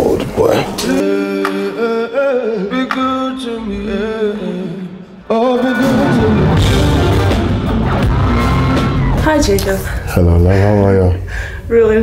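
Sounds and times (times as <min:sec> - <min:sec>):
man singing slow notes: 0:00.8 - 0:07.2
full band music: 0:05.7 - 0:09.4.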